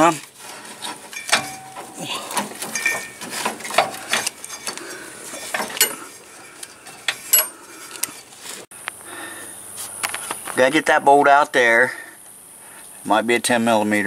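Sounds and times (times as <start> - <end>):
metallic clicks and knocks: 0.8 - 8.2.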